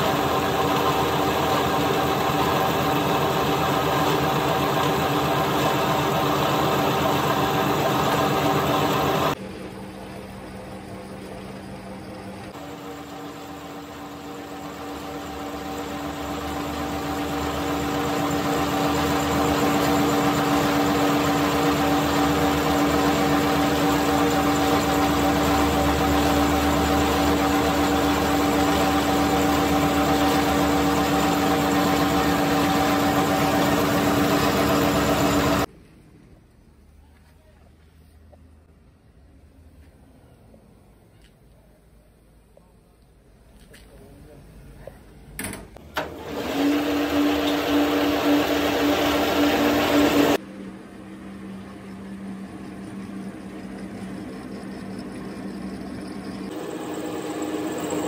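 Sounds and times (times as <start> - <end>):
metal lathe humming: 0.0 - 9.4, 12.5 - 35.7, 46.0 - 50.4, 51.1 - 58.0.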